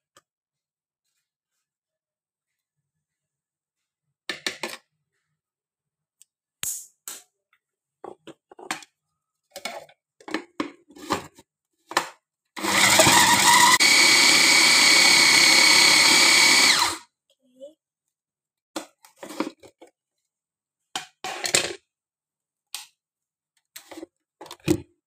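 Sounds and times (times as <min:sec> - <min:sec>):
electric food chopper whining: 0:12.6 - 0:17.1.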